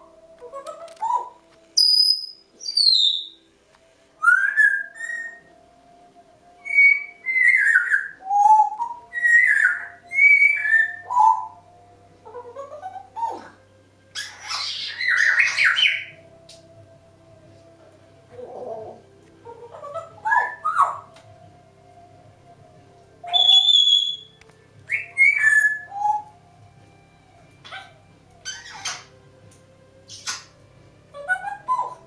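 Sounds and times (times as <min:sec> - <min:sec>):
parrot whistles and chirps: 0:00.5 - 0:03.4, 0:04.2 - 0:05.5, 0:06.6 - 0:11.6, 0:14.2 - 0:16.2, 0:19.7 - 0:21.2, 0:23.2 - 0:26.3, 0:27.6 - 0:29.2, 0:30.1 - 0:32.0
parrot raspy call: 0:27.6 - 0:29.1.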